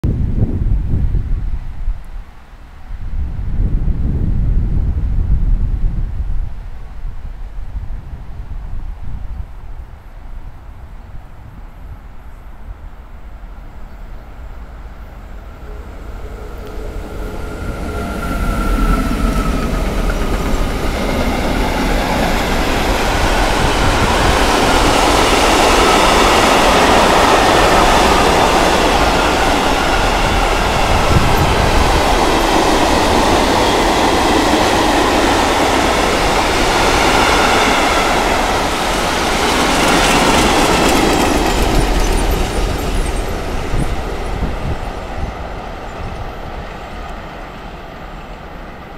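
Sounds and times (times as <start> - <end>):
locomotive passing: 14.7 - 48.9
freight wagons rumbling: 15.8 - 36.9, 38.2 - 45.3
wheels clickety-clack on rails: 16.6 - 48.9.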